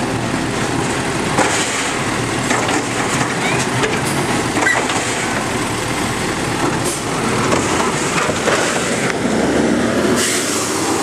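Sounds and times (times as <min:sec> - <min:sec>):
truck engine and hydraulics: 0:00.0 - 0:11.0
cart and metal arm clattering: 0:01.3 - 0:05.6, 0:06.6 - 0:09.2.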